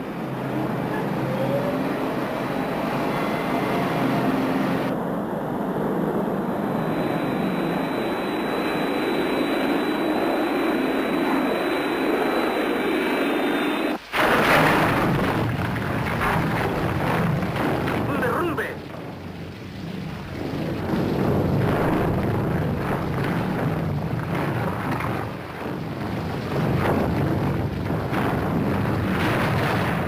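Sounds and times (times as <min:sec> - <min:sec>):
jet engine rushing: 0:00.0 - 0:19.2
harsh rushing noise: 0:06.3 - 0:30.0.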